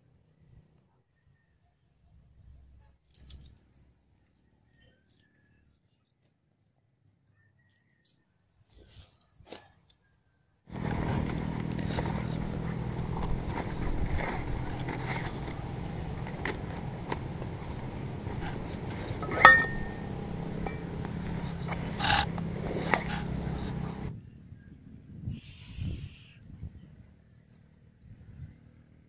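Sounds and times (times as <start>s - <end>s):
folding table and bag rattling: 10.7s - 24.1s
steady low hum: 10.7s - 24.3s
sharp metallic clink: 19.2s - 21.5s.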